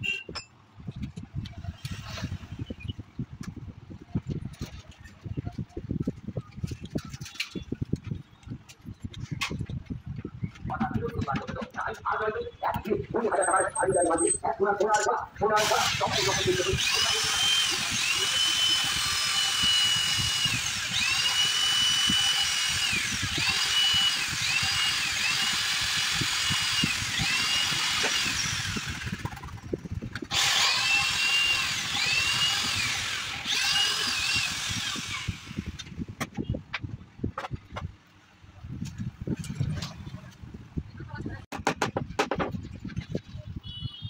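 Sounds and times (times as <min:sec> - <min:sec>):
electric drill boring wood: 0:15.5 - 0:35.9.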